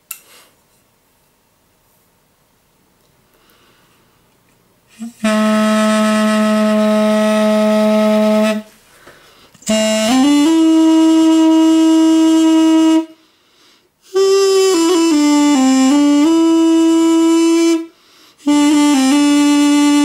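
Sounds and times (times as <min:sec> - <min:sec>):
double-reed wind instrument notes: 0:04.9 - 0:08.7, 0:09.6 - 0:13.2, 0:14.0 - 0:20.0
player breathing: 0:08.8 - 0:09.6, 0:18.0 - 0:18.4.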